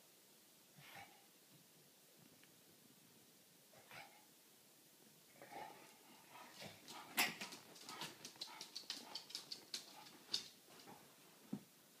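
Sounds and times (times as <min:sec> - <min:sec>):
puppy claws clicking on floor: 0:06.6 - 0:11.0.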